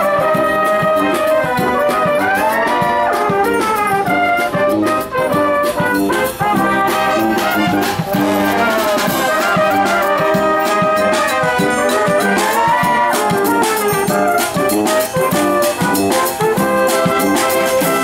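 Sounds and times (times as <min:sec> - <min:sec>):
brass band playing: 0:00.0 - 0:18.0
drum kit beating: 0:00.0 - 0:18.0.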